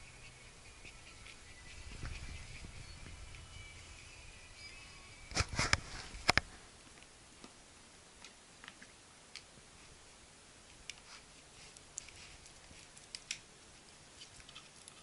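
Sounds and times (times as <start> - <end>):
puppy sniffing and licking: 10.9 - 15.0
puppy claws clicking: 11.7 - 13.5.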